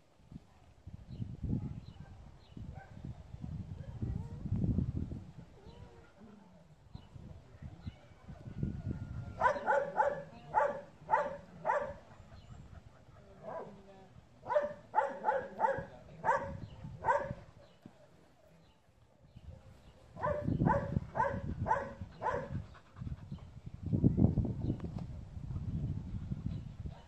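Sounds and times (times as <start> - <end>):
dog barking: 9.4 - 12.1, 14.5 - 17.4, 20.2 - 22.5.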